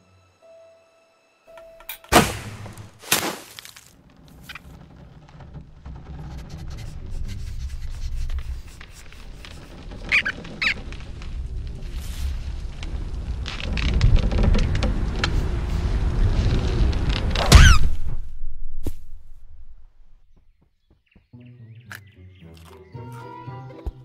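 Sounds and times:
cartoon whooshing hits: 2.1s - 3.4s, 17.4s - 19.4s
low rumble: 4.0s - 20.4s
short high squeaks: 6.3s - 11.0s, 17.4s - 18.0s.

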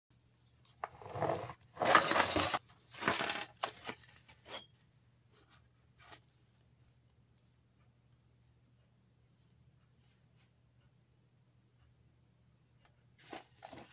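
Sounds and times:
cans rustling and scraping on wood: 0.7s - 4.7s, 13.2s - 13.9s.

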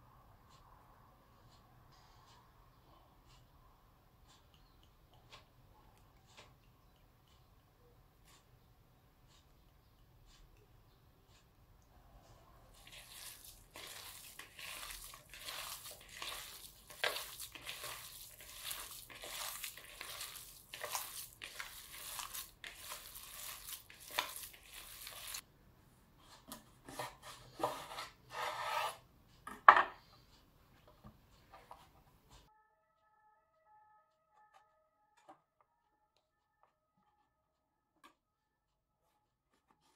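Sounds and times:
hands kneading minced meat: 12.7s - 25.4s.

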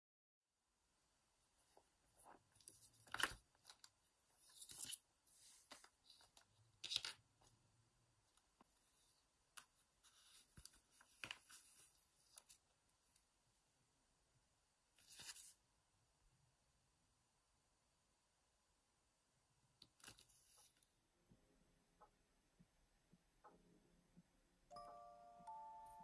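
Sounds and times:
hands handling leather journal: 1.7s - 7.6s, 8.3s - 12.7s.

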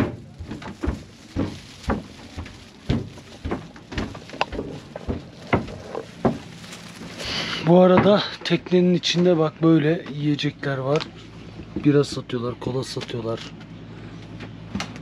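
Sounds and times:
knocks and thuds of bags: 0.0s - 8.6s.

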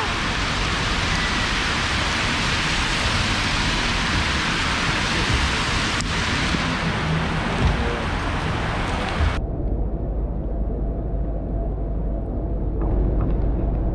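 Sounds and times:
heavy rain falling: 0.0s - 9.4s.

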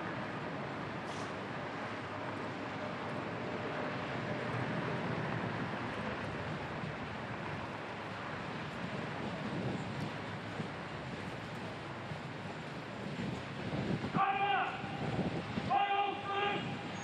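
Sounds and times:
wind on microphone: 3.9s - 17.0s.

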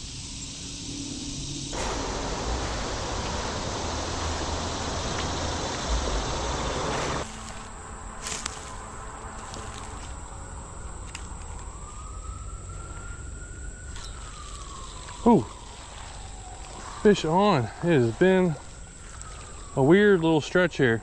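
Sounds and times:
distant siren: 0.0s - 21.0s
high insect drone: 0.0s - 21.0s
creek water rushing: 1.7s - 7.3s.

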